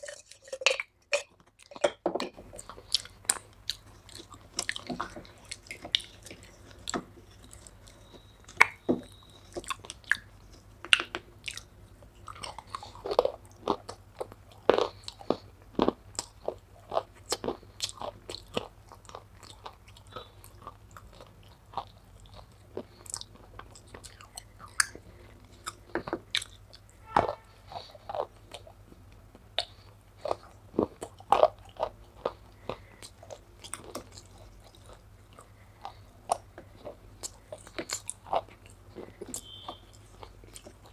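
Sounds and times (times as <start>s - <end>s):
wet chewing sounds: 0.0s - 40.9s.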